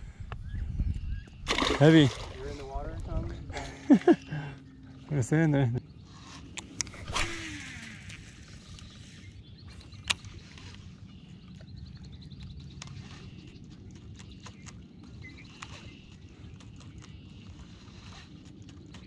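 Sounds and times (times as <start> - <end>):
steady low hum: 0.0 - 19.0
rod swish and reel whir: 6.0 - 11.3, 12.8 - 13.5.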